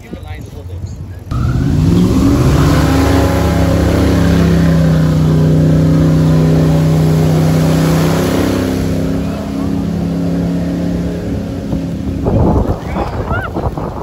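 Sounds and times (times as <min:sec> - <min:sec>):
airboat engine and propeller revving: 0:00.8 - 0:14.0.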